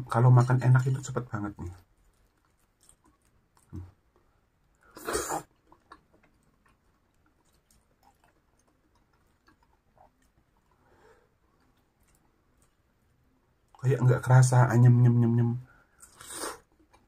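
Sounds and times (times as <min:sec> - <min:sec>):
person chewing: 0:01.8 - 0:10.8, 0:11.5 - 0:12.9, 0:15.9 - 0:17.0.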